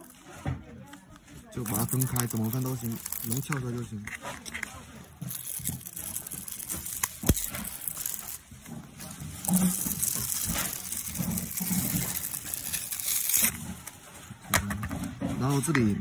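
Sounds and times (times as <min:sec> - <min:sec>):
plastic scraping and creaking: 0:00.0 - 0:16.0.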